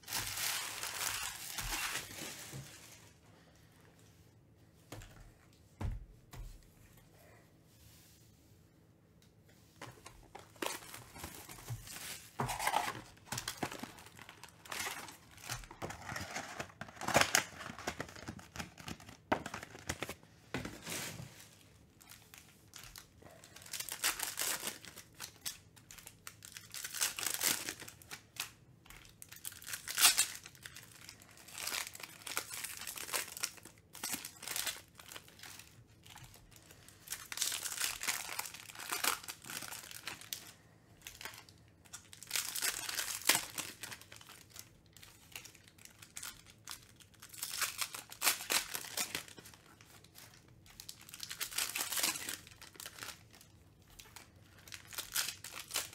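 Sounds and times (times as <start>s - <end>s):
foil wrappers crinkling: 0.0s - 3.2s, 10.2s - 20.2s, 20.8s - 55.9s
packs torn open: 12.4s - 20.2s, 23.6s - 28.5s, 29.3s - 35.6s, 37.1s - 40.4s, 42.2s - 49.5s, 50.1s - 53.3s, 54.0s - 55.9s.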